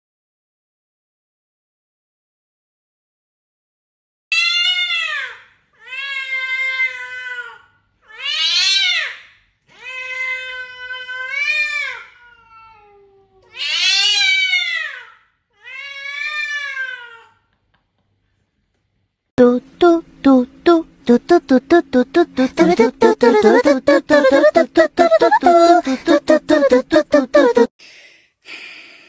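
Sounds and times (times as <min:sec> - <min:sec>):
cat meowing loudly: 0:08.1 - 0:09.2, 0:13.5 - 0:17.3.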